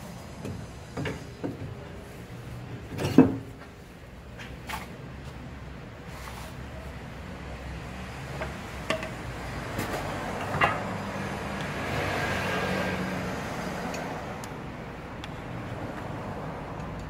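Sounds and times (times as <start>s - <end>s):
motor vehicle passing: 7.6s - 17.0s.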